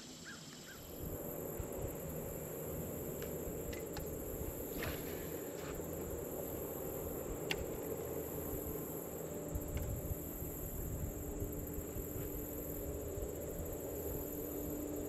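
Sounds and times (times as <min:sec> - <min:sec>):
high-pitched insect drone: 0:00.0 - 0:15.0.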